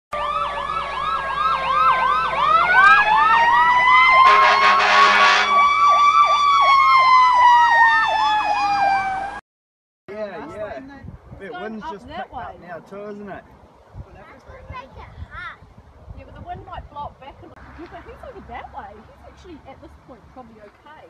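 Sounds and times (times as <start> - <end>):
siren wail: 0.2 - 9.4
siren yelp: 0.2 - 9.4
loud noisy horn blast: 4.2 - 5.7.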